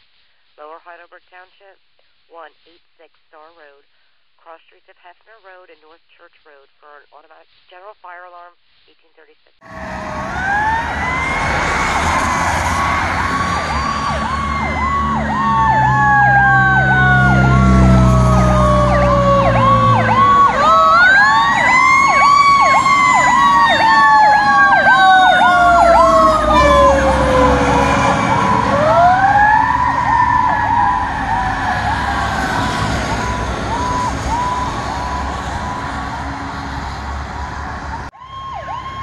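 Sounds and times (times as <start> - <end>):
wailing siren: 9.6 - 39.0
yelp siren: 9.6 - 39.0
heavy engine rumble: 9.7 - 21.0.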